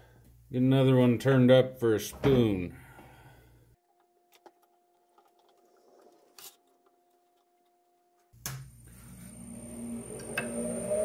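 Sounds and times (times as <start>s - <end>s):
wood lathe whine: 9.0s - 11.0s.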